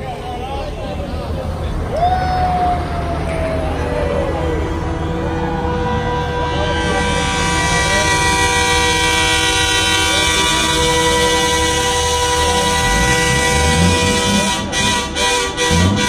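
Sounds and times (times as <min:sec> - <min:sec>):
low engine rumble: 0:00.0 - 0:16.0
truck air horn chord: 0:04.4 - 0:16.0.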